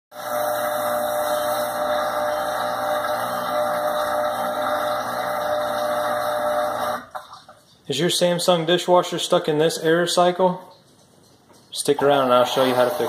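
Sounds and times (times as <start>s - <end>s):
dishwasher pump humming: 0.1s - 7.5s, 12.0s - 13.0s.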